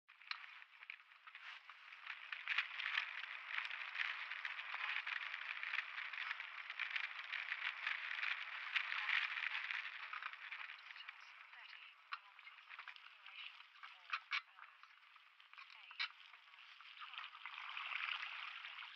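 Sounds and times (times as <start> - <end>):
bike rattling over bumps: 0.1 - 12.2.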